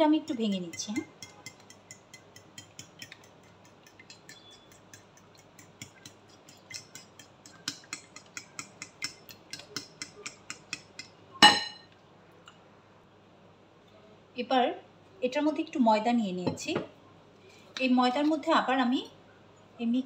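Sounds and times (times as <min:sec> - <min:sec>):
fork clicking on ceramic plate: 0:00.3 - 0:11.2.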